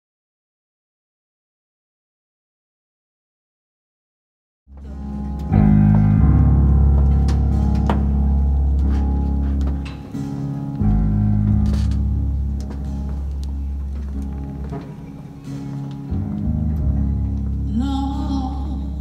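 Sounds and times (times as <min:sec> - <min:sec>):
deep held bass notes: 0:04.7 - 0:19.0
sustained band chords: 0:04.7 - 0:19.0.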